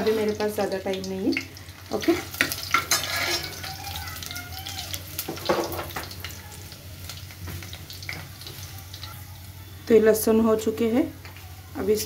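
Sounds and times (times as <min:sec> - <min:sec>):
garlic sizzling in oil: 0:00.0 - 0:12.0
ladle scraping metal pot: 0:02.2 - 0:03.6.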